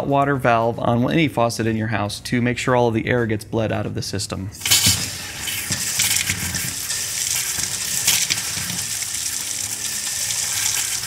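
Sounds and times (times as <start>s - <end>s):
faucet water spattering into sink: 4.6s - 11.0s.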